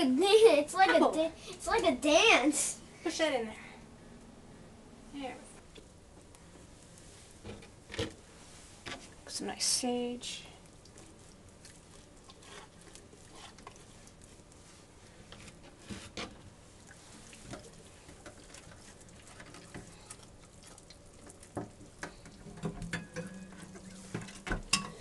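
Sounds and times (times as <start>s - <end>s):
hands stuffing raw turkey: 10.6s - 16.2s.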